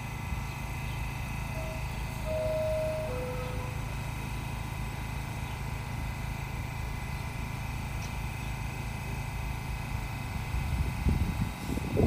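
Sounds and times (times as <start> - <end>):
subway car low drone: 0.0 - 12.0
faint high whine: 0.8 - 6.2.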